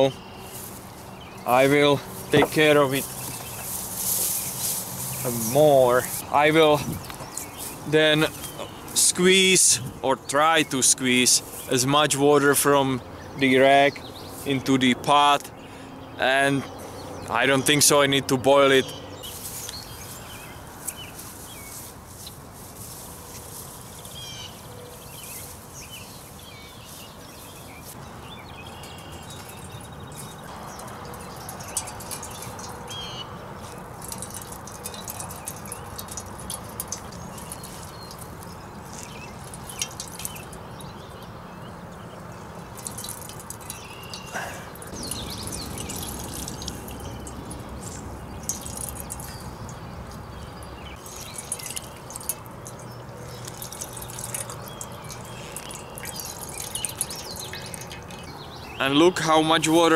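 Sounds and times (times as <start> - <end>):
water dripping into metal pot: 28.8 - 58.6.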